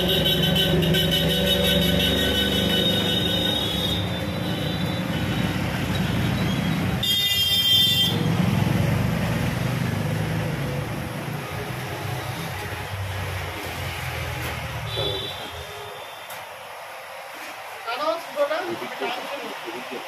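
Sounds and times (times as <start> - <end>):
vehicle horn honking: 0.0 - 5.3, 7.0 - 8.3, 14.8 - 16.3
low engine rumble of traffic: 0.0 - 20.0.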